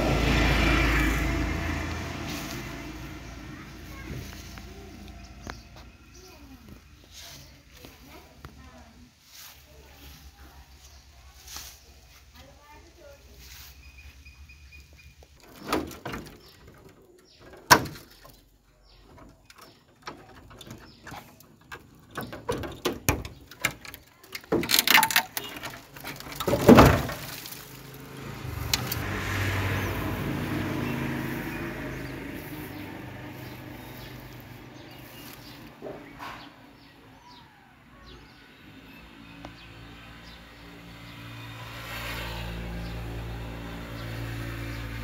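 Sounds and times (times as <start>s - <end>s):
handling knocks and rustling: 1.6s - 13.8s, 15.2s - 29.2s.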